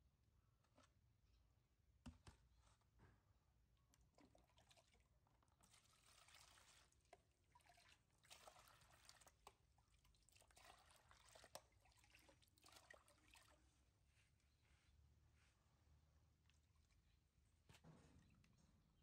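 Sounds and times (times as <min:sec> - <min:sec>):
water poured splashing and trickling: 0:04.1 - 0:13.8.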